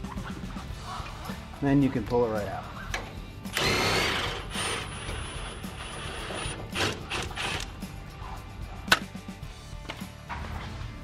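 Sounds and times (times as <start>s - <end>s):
impact wrench whining: 3.5s - 7.7s.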